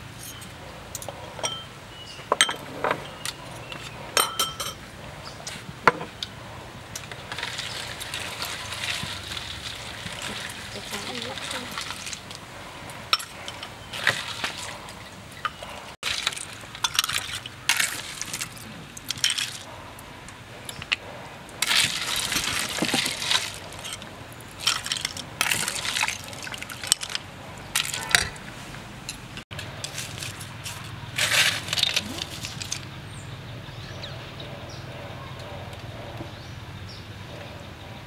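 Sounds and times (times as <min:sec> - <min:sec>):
ice clinking: 0:13.0 - 0:19.7, 0:21.6 - 0:28.4.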